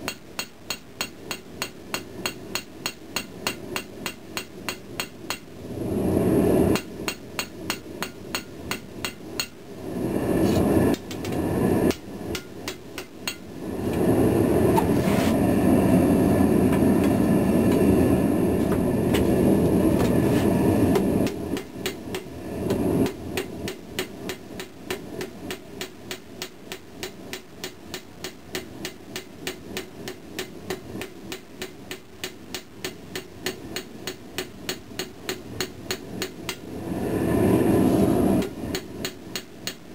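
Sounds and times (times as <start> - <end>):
hammer striking steel on anvil: 0.0 - 5.5, 6.7 - 9.6, 10.9 - 13.5, 20.9 - 22.3, 23.0 - 36.6, 38.4 - 39.8
loud rushing noise: 36.7 - 38.7.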